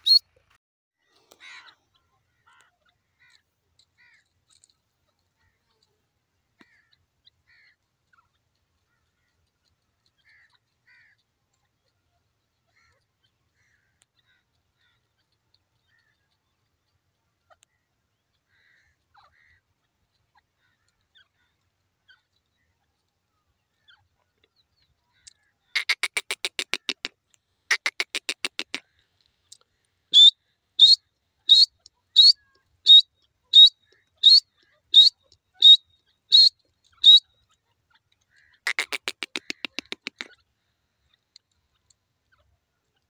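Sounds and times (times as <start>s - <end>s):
francolin calling: 0.0s - 0.2s, 30.1s - 37.4s.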